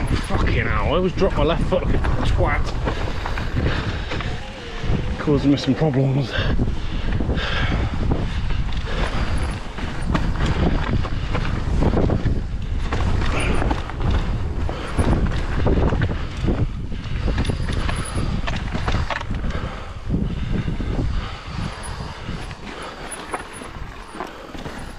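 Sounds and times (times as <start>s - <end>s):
bike tyres rumbling on dirt: 0.0s - 24.9s
wind buffeting microphone: 0.0s - 24.9s
bike knocks and rattles: 8.0s - 19.7s, 20.9s - 24.9s.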